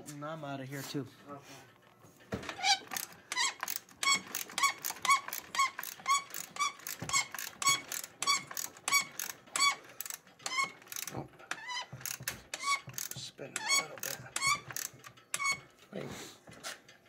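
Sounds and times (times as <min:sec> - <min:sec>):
ratchet wrench clicking: 0:02.6 - 0:15.6.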